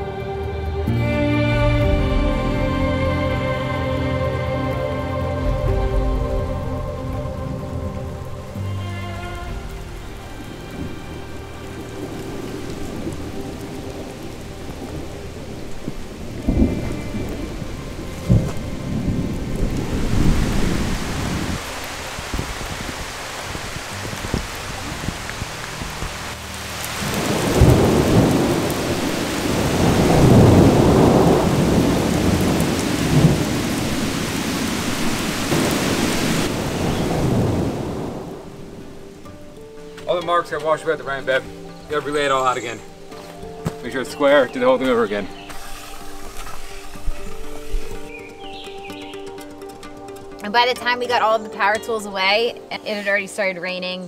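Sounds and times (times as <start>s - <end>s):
rain falling: 0.0s - 54.0s
thunder cracks: 5.4s - 8.4s, 9.6s - 26.2s, 27.0s - 39.1s
rolling thunder: 5.4s - 8.6s, 9.2s - 26.4s, 27.0s - 39.3s.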